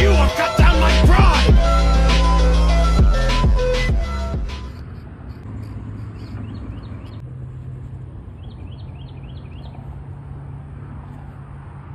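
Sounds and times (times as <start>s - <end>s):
road traffic rumble: 0.0s - 11.9s
small bird chirping: 5.3s - 7.2s, 8.3s - 9.9s.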